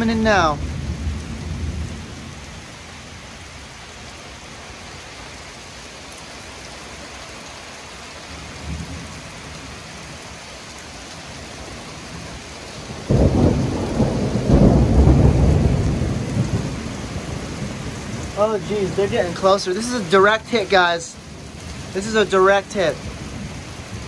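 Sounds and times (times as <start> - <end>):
thunder rumbling: 0.0 - 2.4, 12.8 - 24.0
heavy rain: 0.0 - 24.0
loud thunderclap: 12.9 - 19.2.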